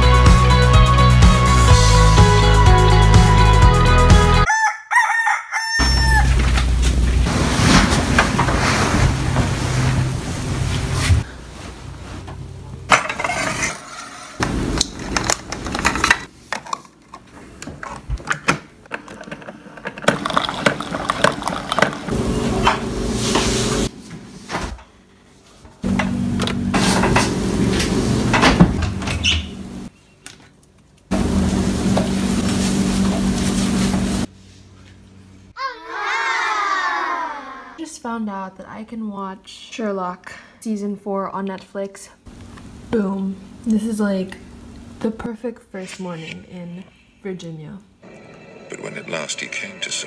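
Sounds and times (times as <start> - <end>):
appliance hum: 6.2 - 29.9, 30.8 - 35.5, 42.3 - 45.2.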